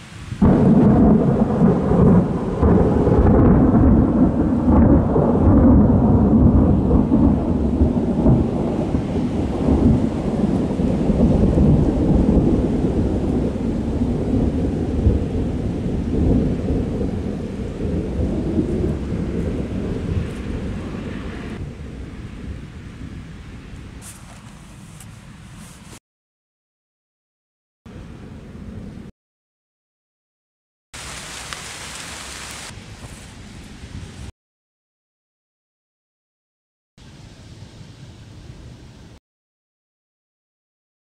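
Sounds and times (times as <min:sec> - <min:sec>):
thunder rumbling: 0:00.0 - 0:24.1.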